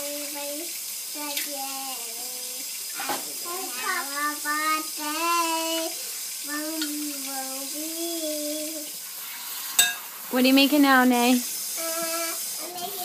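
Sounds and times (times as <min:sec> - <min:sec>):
child singing wordless tune: 0:00.0 - 0:09.0, 0:11.7 - 0:13.0.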